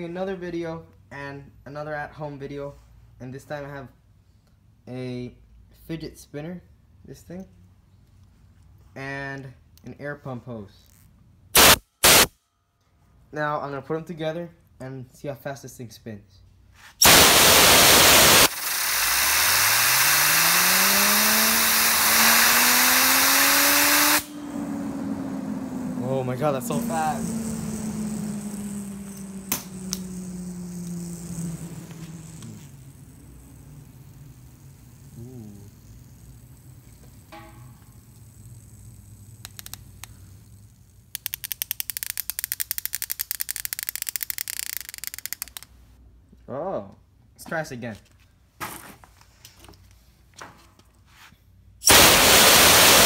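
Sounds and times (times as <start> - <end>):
compressed air hissing: 16.9 - 37.1, 51.8 - 53.0
spinner bearing whirring: 17.0 - 45.8.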